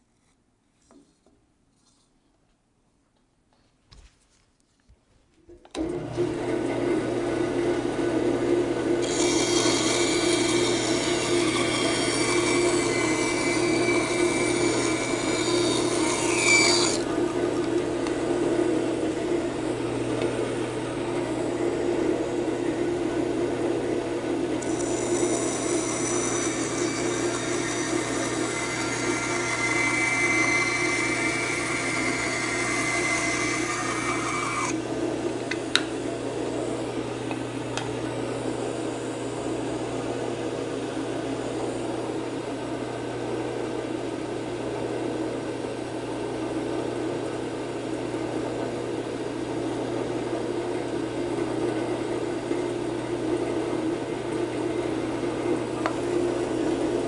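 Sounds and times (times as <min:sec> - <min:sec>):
band saw humming: 0:05.7 - 0:42.3
high whine of saw cutting wood: 0:09.0 - 0:21.6, 0:24.6 - 0:37.1.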